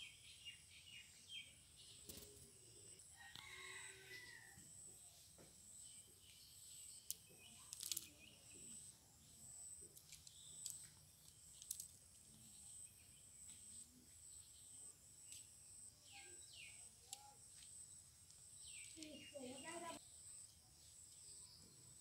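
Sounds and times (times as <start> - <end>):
falling bird chirps: 5.8 - 9.0.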